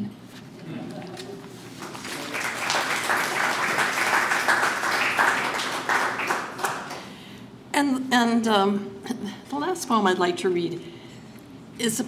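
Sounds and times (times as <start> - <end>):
audience applauding: 1.7 - 7.2.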